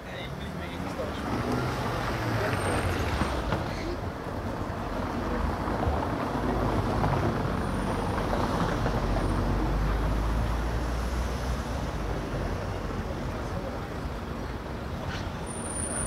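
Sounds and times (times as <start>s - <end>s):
road noise: 0.0s - 16.0s
vehicle rumble: 0.0s - 16.0s.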